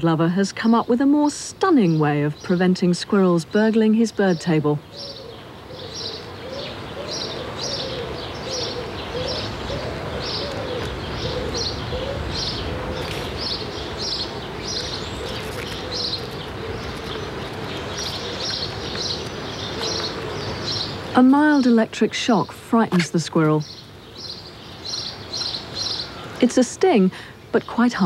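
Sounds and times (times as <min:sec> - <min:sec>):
birds chirping: 0:00.0 - 0:28.0.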